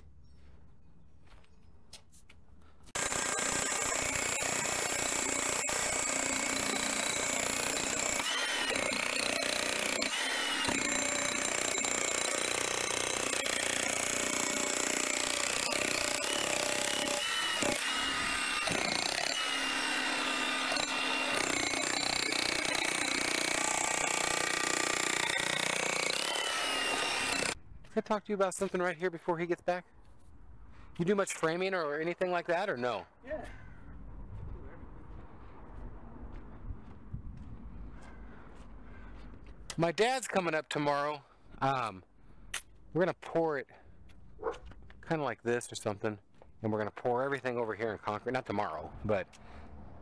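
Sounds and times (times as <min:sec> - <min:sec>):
power tool running under load: 0:03.0 - 0:27.6.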